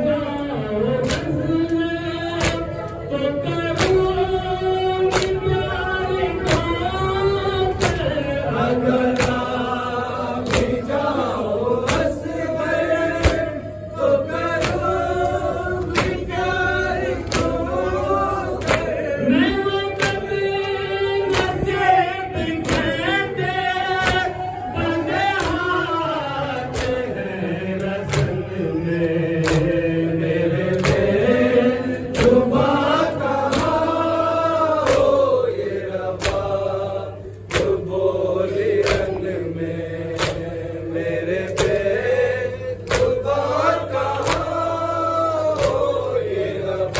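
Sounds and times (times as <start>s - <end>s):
men singing in chorus: 0.0s - 46.9s
hands slapping chests: 2.4s - 2.7s, 5.1s - 5.5s, 9.1s - 9.5s, 10.4s - 10.8s, 14.4s - 16.3s, 18.5s - 19.0s, 22.6s - 23.0s, 25.3s - 25.8s, 26.7s - 27.1s, 29.4s - 29.7s, 36.2s - 36.6s, 40.2s - 40.5s, 42.8s - 43.2s, 44.1s - 44.6s, 45.5s - 46.0s.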